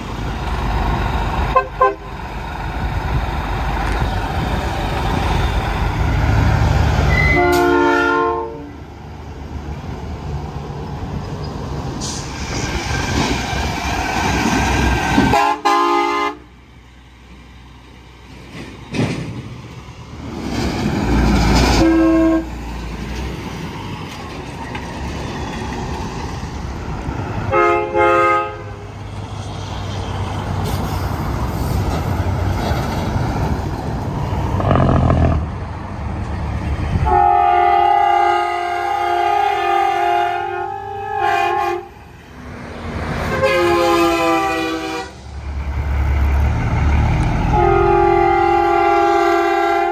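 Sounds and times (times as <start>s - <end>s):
truck diesel engines running: 0.0s - 49.9s
truck horn blasts: 1.5s - 2.1s, 7.1s - 8.8s, 15.3s - 16.5s, 21.8s - 22.5s, 27.5s - 28.9s, 37.0s - 41.9s, 43.3s - 45.2s, 47.5s - 49.9s.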